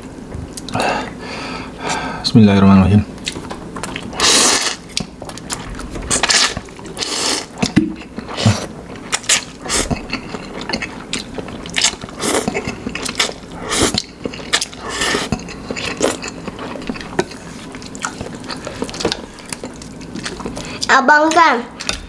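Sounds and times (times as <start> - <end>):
noodles slurped and chewed: 3.9 - 20.9.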